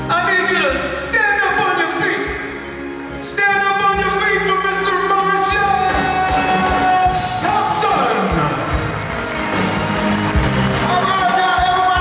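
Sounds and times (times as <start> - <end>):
drums: 0.0 - 12.0.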